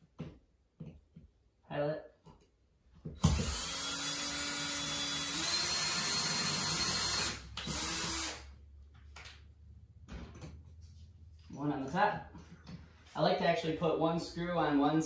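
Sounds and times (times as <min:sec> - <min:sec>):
cordless drill boring: 0:03.2 - 0:08.5.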